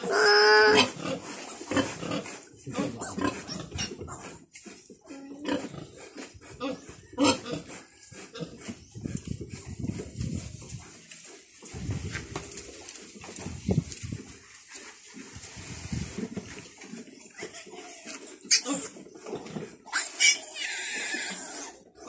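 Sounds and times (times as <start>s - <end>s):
piglet squealing: 0.0s - 1.0s, 2.9s - 4.2s, 19.9s - 21.8s
piglet grunts: 0.0s - 1.2s
piglet grunting: 0.0s - 4.4s.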